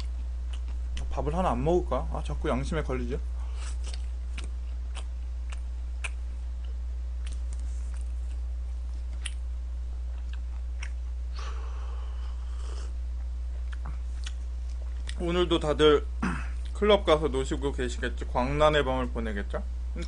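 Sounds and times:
low electrical hum: 0.0 - 20.0
wet chewing mouth clicks: 3.7 - 8.4.

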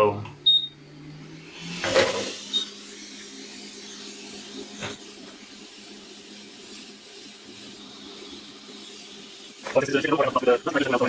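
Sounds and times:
hot air blower rushing: 0.8 - 11.0.

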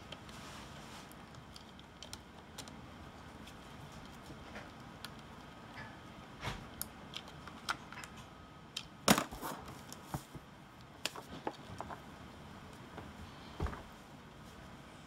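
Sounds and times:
plastic parts clicking and tapping: 1.1 - 2.8, 6.7 - 9.3.

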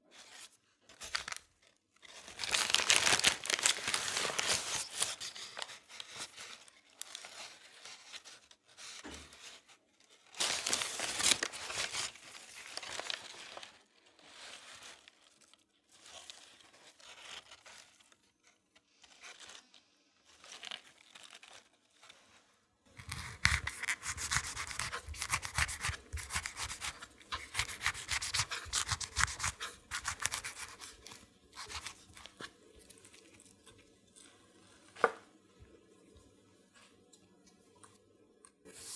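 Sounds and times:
paper bag crinkling: 0.9 - 9.1, 10.1 - 18.1.

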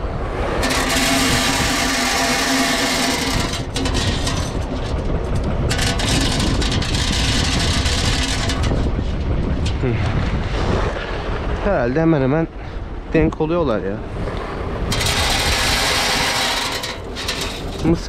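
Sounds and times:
tractor diesel engine running: 0.6 - 9.6.

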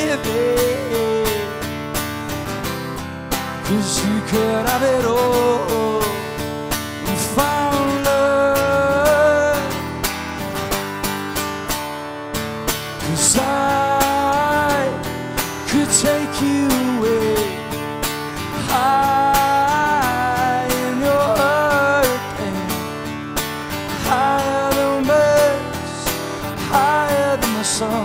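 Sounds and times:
man singing: 0.0 - 1.8, 3.6 - 10.1, 12.9 - 23.2, 23.8 - 28.0
strummed acoustic guitar: 0.0 - 28.0.

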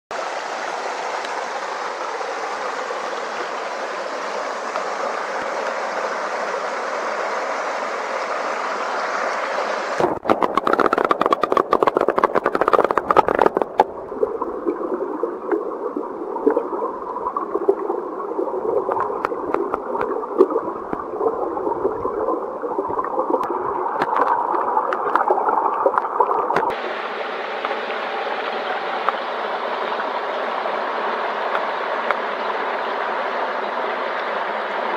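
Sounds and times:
stream rushing over rocks: 0.1 - 34.9
underwater bubbling: 9.9 - 34.9.

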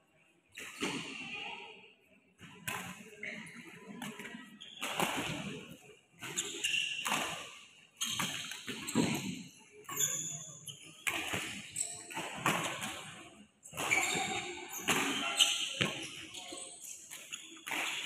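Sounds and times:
shoes squeaking on court: 4.5 - 18.0.

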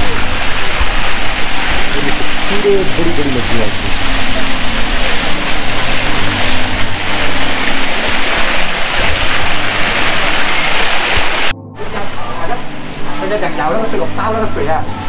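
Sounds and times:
fountain water splashing: 0.0 - 11.5
low hum: 0.0 - 15.0.

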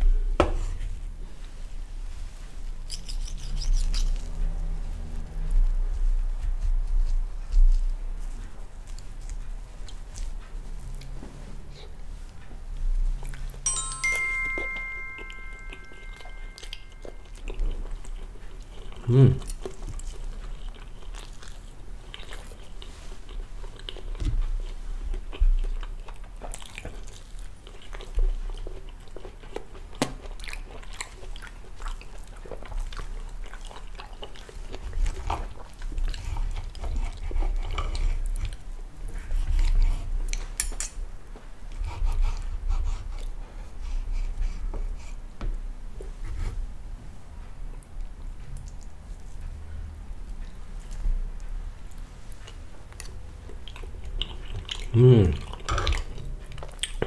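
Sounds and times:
person chewing: 2.7 - 5.0, 12.7 - 41.0, 50.3 - 57.0
knife and fork clicks: 2.9 - 4.2
short ringing chime: 13.6 - 17.4
hum-like vocal sound: 54.9 - 55.6.

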